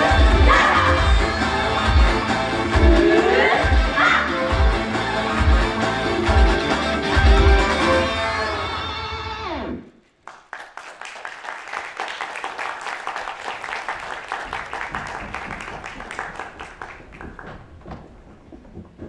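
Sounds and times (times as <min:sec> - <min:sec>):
audience applauding: 0:00.0 - 0:08.4, 0:10.2 - 0:18.5
live music: 0:00.0 - 0:09.9.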